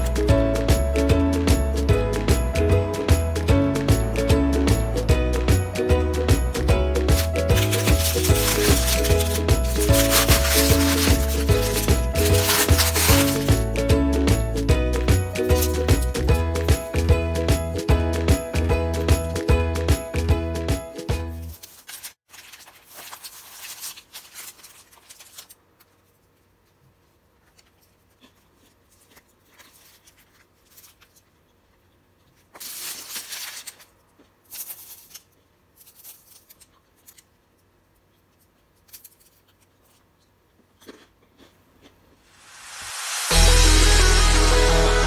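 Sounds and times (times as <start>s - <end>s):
bread being torn by hand: 7.1s - 13.5s, 32.5s - 37.3s, 38.7s - 40.0s
bread crust crackling: 7.1s - 13.7s, 32.5s - 37.3s.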